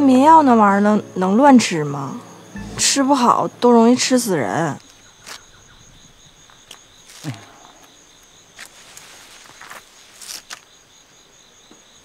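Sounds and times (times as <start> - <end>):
crickets chirring: 0.0 - 12.0
low sound falling in pitch: 2.6 - 3.6.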